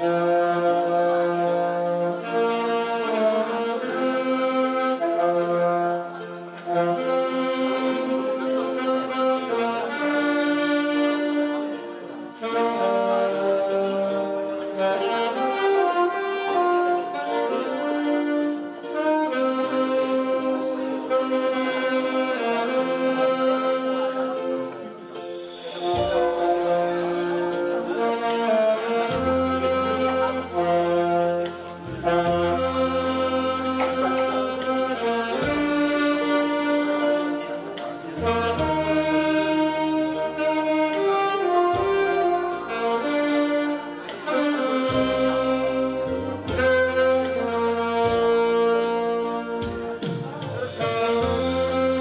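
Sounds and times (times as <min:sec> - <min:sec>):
saxophones playing slow melody: 0:00.0 - 0:52.0
accompaniment track with bass and beat: 0:25.2 - 0:52.0.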